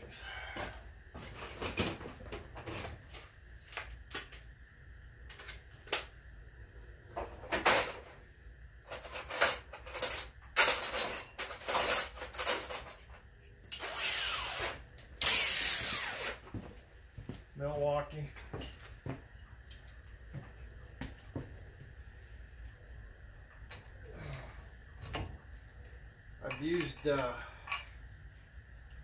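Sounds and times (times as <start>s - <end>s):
tools clanking and knocking: 1.3s - 3.2s, 8.9s - 13.3s, 18.4s - 20.7s, 25.0s - 28.0s
tools rattling: 8.8s - 13.9s.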